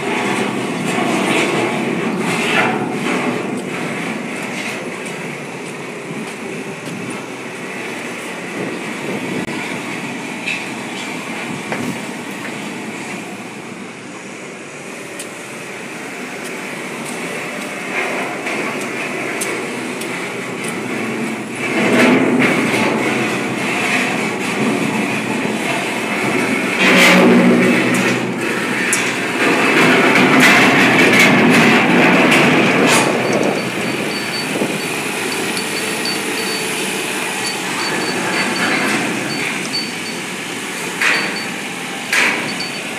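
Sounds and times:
forklift engines droning: 0.0 - 42.9
steel load clicking and rattling: 28.8 - 42.9
faint high beeps: 33.3 - 40.2, 42.5 - 42.9.

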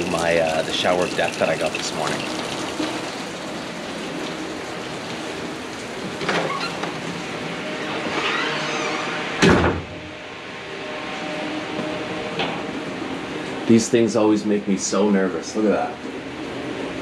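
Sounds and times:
shower water spattering: 0.0 - 7.4
loud knock: 9.4 - 10.0.

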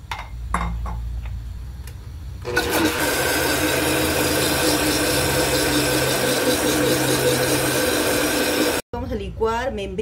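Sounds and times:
blender running: 2.4 - 8.8.

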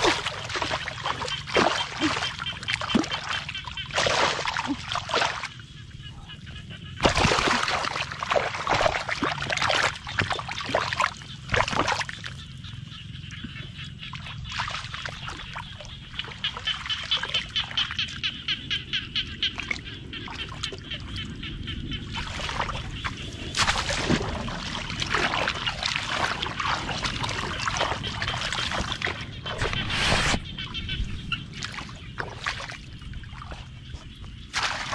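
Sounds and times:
fish churning water: 0.0 - 5.6, 7.0 - 34.9
splashing in muddy water: 0.0 - 5.6, 7.0 - 34.9.

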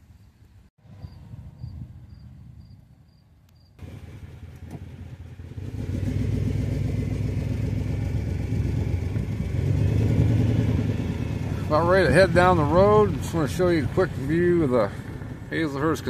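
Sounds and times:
vehicle engine running: 3.8 - 16.0.

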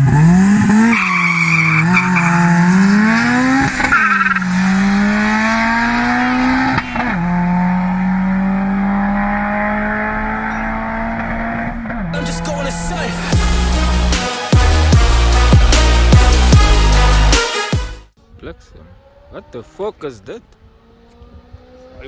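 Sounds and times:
car engines revving hard: 0.0 - 17.3, 18.9 - 22.0.

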